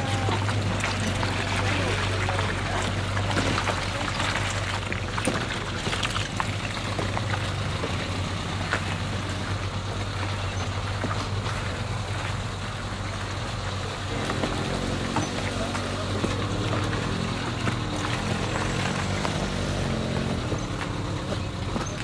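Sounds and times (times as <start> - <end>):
stones knocking: 0.0 - 12.4
off-road vehicle engine running: 0.0 - 22.0
tyres splashing through mud: 0.0 - 22.0.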